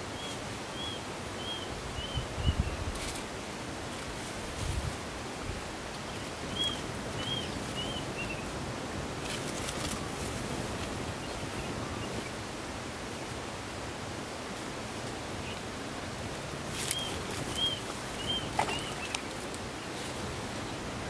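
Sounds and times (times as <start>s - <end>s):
outdoor background hiss: 0.0s - 21.0s
brief rustle: 2.9s - 3.3s, 9.2s - 10.3s.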